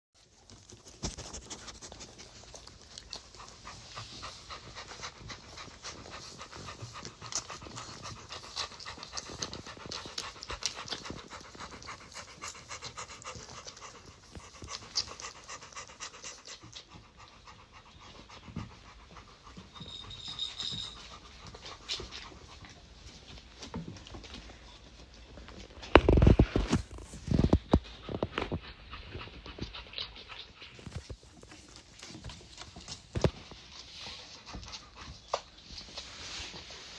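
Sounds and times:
dog panting: 0:00.2 - 0:25.5, 0:27.4 - 0:36.9
puppies suckling: 0:00.2 - 0:36.9
high squeak: 0:19.7 - 0:21.2.

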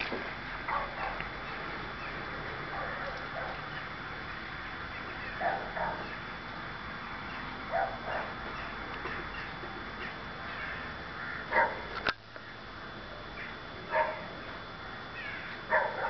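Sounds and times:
outdoor background noise: 0:00.0 - 0:16.0
distant dog barking: 0:00.6 - 0:01.6, 0:02.7 - 0:03.9, 0:05.2 - 0:06.3, 0:07.7 - 0:10.8, 0:11.4 - 0:11.9, 0:13.9 - 0:14.3, 0:15.7 - 0:16.0.

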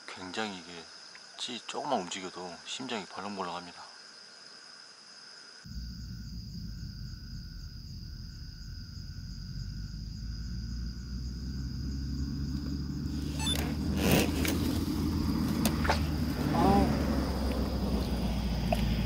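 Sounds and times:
crickets trilling: 0:00.0 - 0:19.0
low rumble: 0:05.7 - 0:19.0.

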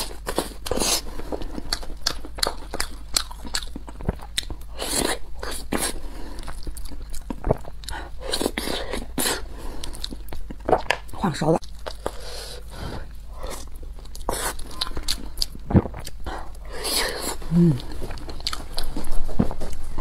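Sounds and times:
chewing and wet mouth smacks: 0:01.5 - 0:09.0.

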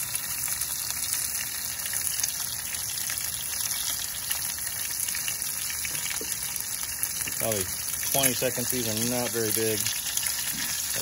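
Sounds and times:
fish searing in hot oil: 0:00.0 - 0:11.0.

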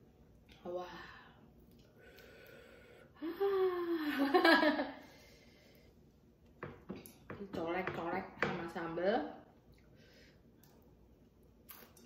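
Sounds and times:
soft breath: 0:01.0 - 0:03.4.

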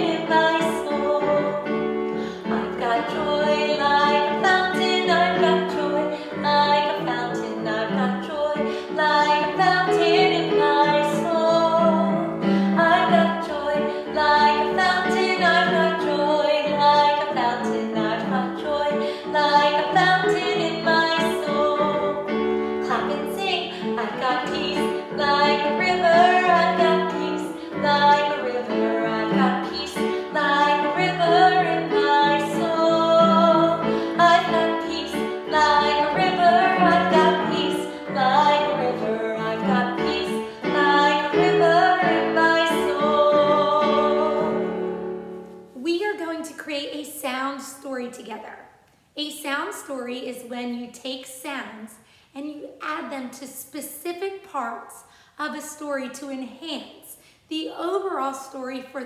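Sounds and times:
woman singing: 0:00.0 - 0:44.8.

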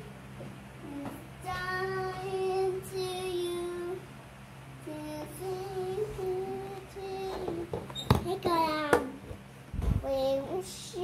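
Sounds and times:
steady low hum: 0:00.0 - 0:11.0
girl singing: 0:00.8 - 0:04.1, 0:04.8 - 0:09.2, 0:10.0 - 0:11.0.

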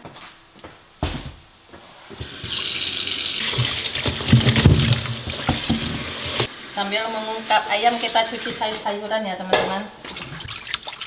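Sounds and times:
kitchen tap turned on: 0:02.2 - 0:06.6
water running into steel sink: 0:02.2 - 0:08.9
vegetables knocking: 0:03.4 - 0:06.5.

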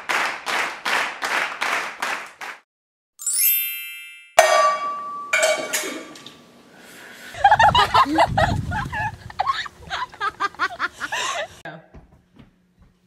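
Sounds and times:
chime-like ringing: 0:03.2 - 0:05.8
girls shrieking laughter: 0:07.4 - 0:11.6.

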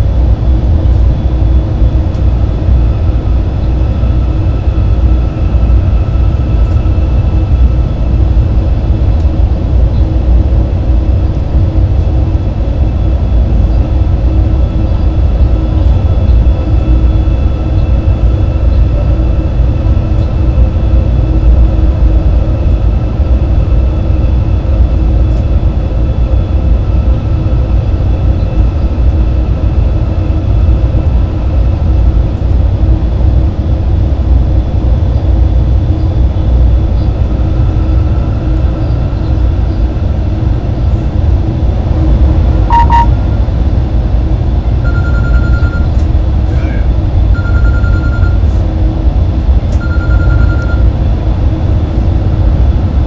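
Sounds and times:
train cab rumble and rush: 0:00.0 - 0:53.0
beeping tone: 0:42.6 - 0:43.4, 0:44.8 - 0:46.0, 0:47.3 - 0:48.4, 0:49.8 - 0:50.9
short sharp beep: 0:42.7 - 0:43.3, 0:44.8 - 0:45.9, 0:47.4 - 0:48.4.

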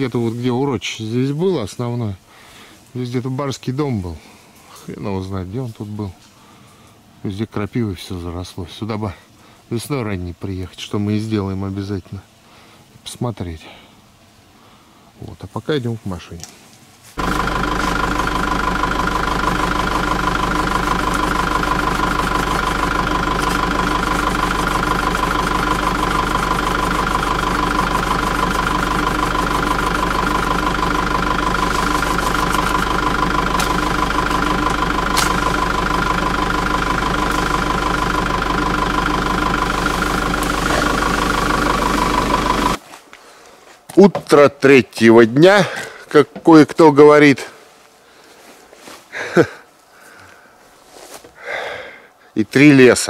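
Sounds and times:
car engine running: 0:17.2 - 0:42.8.

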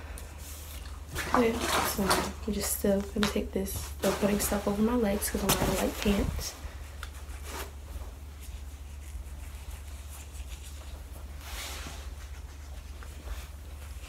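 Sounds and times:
steady low hum: 0:00.0 - 0:14.0
comb scratching through hair: 0:04.0 - 0:14.0.

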